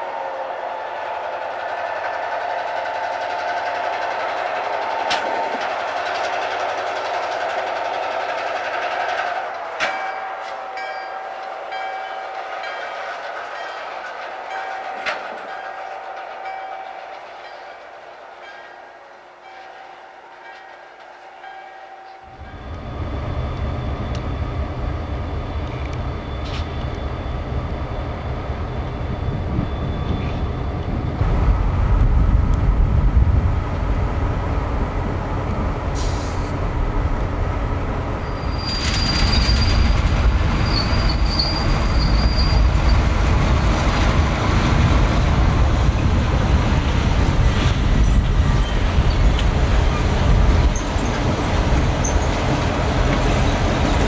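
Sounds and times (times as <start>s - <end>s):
high wheel squeal: 19.6s - 31.2s, 38.2s - 43.2s, 48.0s - 52.5s
diesel locomotive rumble: 22.3s - 54.0s.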